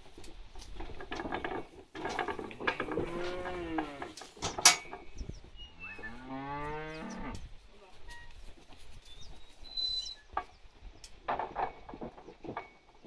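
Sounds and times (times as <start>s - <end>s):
cattle clattering on wooden trailer: 0.0s - 5.2s, 11.2s - 13.0s
heifer mooing: 2.8s - 4.2s, 5.7s - 7.4s.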